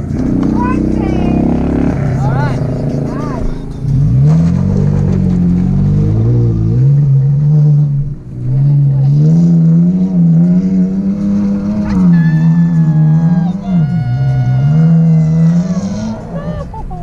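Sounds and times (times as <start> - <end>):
truck engine revving hard: 0.0 - 17.0.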